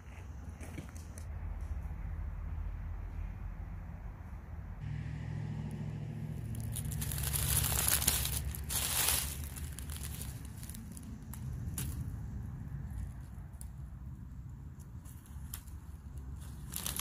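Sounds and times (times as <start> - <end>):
low rumble: 1.3 - 14.6
rustling crinkling with crackles: 6.5 - 14.0, 14.7 - 17.0.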